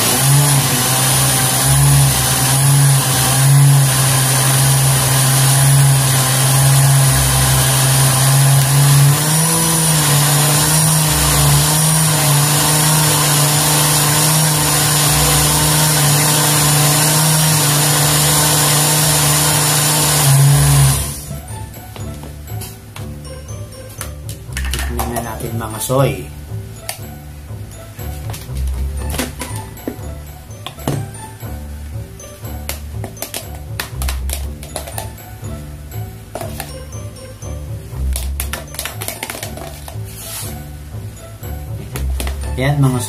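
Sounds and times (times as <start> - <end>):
blender motor running: 0.0 - 21.4.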